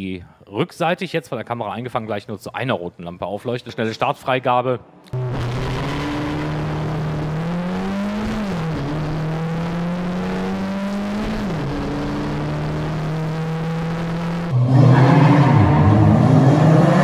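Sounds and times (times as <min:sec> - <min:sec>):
race car engine accelerating: 0:05.1 - 0:17.0.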